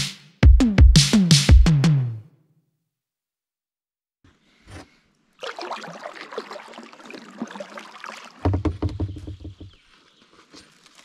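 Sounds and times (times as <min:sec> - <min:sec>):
paddle splashing in water: 0:05.4 - 0:11.0
low thumps: 0:08.5 - 0:09.8.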